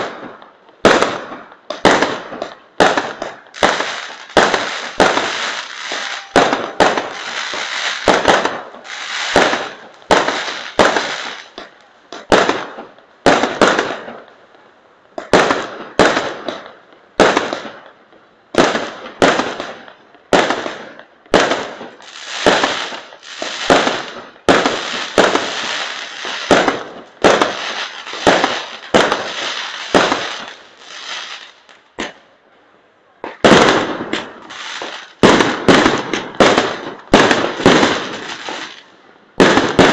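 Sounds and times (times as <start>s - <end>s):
fireworks bangs: 0.0s - 14.3s, 15.1s - 32.3s, 33.2s - 39.9s
fireworks hiss: 1.8s - 11.7s, 21.4s - 32.2s, 33.4s - 38.8s.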